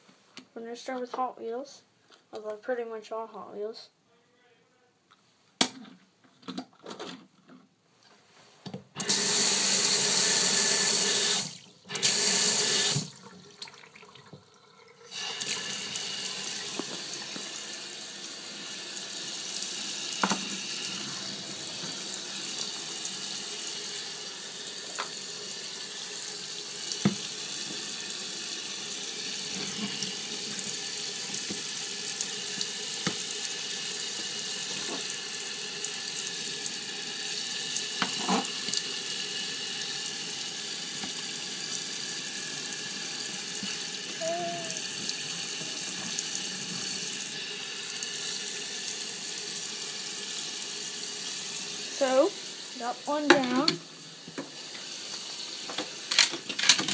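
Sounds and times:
tap water running into sink: 9.0 - 56.9.

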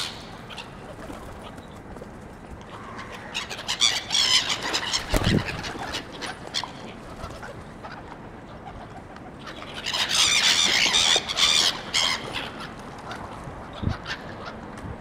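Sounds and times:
gulls squawking: 2.6 - 14.7.

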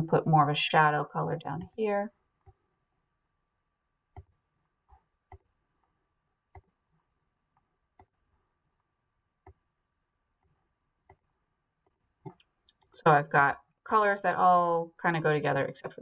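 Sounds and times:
computer mouse clicks: 5.3 - 5.5, 6.5 - 6.8, 9.4 - 9.6.

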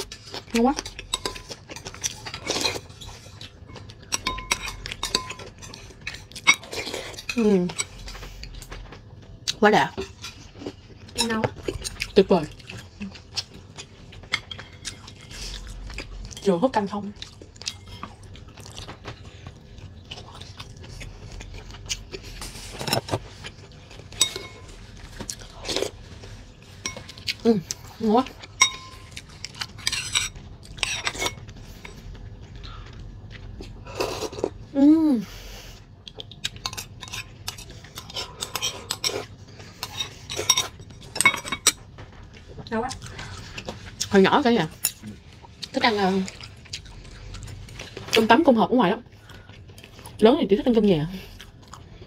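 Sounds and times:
chewing: 0.0 - 34.7, 35.6 - 48.3, 49.1 - 50.2, 51.2 - 52.0
metal spoon clinking glass bowl: 1.1 - 1.6, 3.7 - 5.8, 24.2 - 24.7, 28.6 - 29.2, 39.8 - 41.8
spoon clinking glass bowl: 4.1 - 5.5, 28.6 - 29.1.

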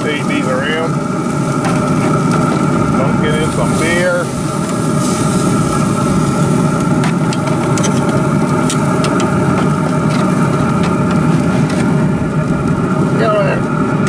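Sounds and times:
grill fan humming: 0.0 - 14.0.

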